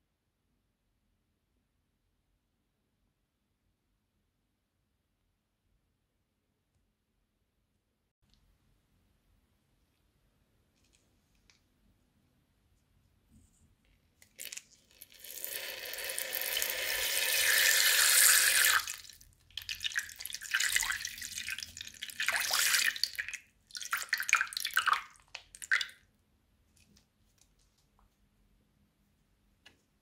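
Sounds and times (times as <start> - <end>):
liquid pouring into plastic bag: 14.2 - 17.9.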